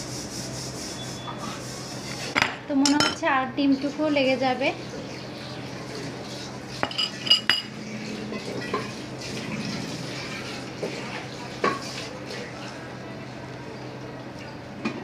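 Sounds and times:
metal spoon clinking glass bowl: 6.8 - 7.7.

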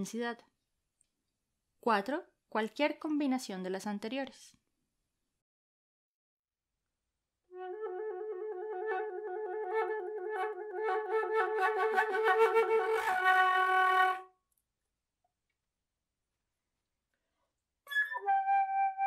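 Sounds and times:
flute low note with vibrato: 7.5 - 14.2.

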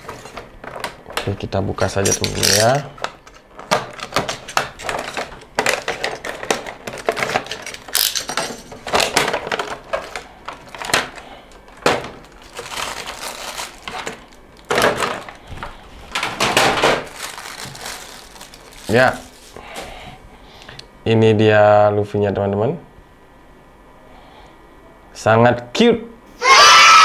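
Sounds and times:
plastic packaging crinkling: 2.0 - 20.0.

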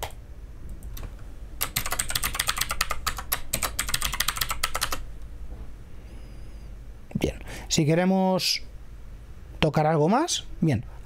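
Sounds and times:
computer keyboard typing: 0.8 - 5.0.

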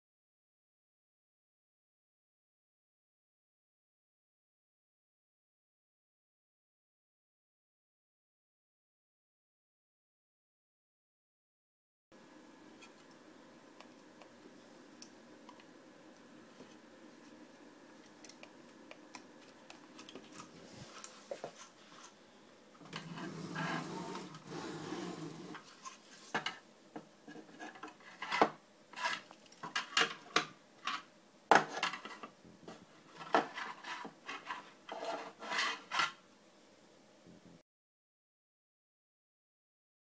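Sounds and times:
plastic rubbing: 22.9 - 26.4.

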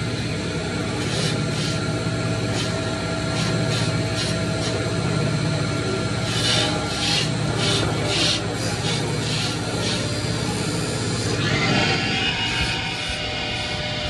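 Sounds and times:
lathe cutters rasping wood: 0.0 - 14.0
lathe motor hum: 0.0 - 14.0.

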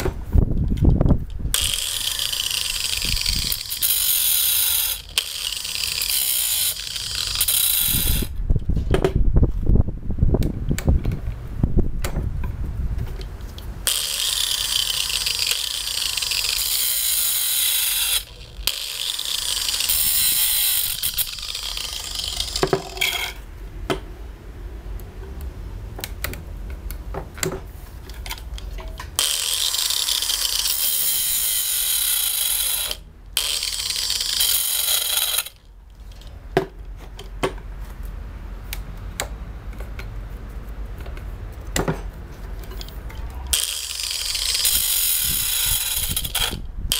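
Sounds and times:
chainsaw chain rattling on bar: 1.6 - 8.3, 13.9 - 23.4, 29.2 - 35.6, 43.5 - 46.6.

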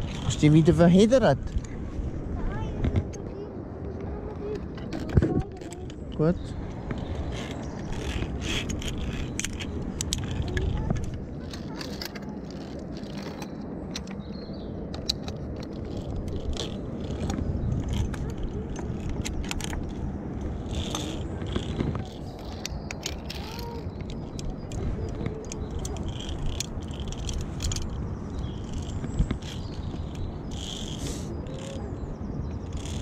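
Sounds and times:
low rumble of handling noise: 0.0 - 33.0
carabiners clinking on steel cable: 6.9 - 14.3, 14.9 - 31.9, 32.6 - 33.0.

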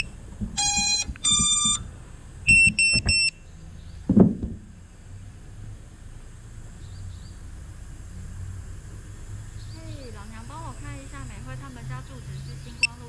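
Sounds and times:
drone motors beeping tones: 0.0 - 1.9, 2.5 - 3.3
dull thump: 0.4 - 1.9, 2.5 - 3.2, 4.1 - 4.7.

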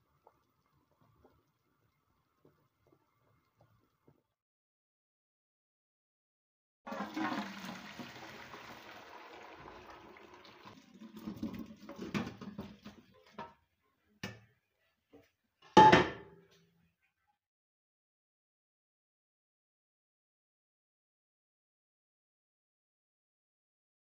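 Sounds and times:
broth pouring through a colander: 6.9 - 12.0.

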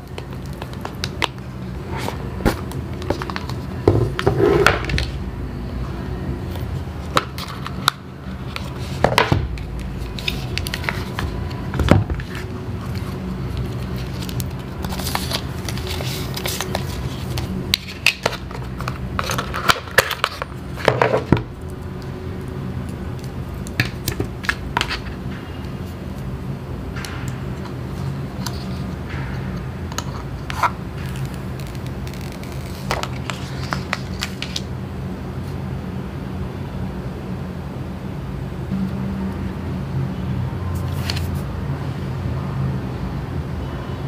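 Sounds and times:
cardboard and paper rustling: 8.4 - 21.4, 30.5 - 34.6, 40.8 - 41.4.

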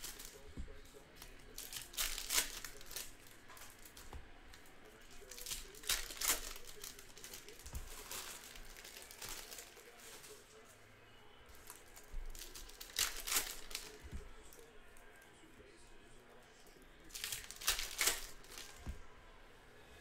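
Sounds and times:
plastic wrappers tearing and crinkling: 0.0 - 10.5, 11.5 - 14.6, 17.1 - 18.9.

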